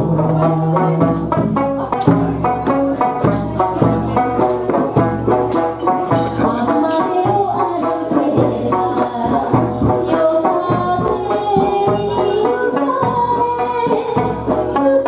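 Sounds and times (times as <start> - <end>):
steady percussive beat: 0.0 - 15.0.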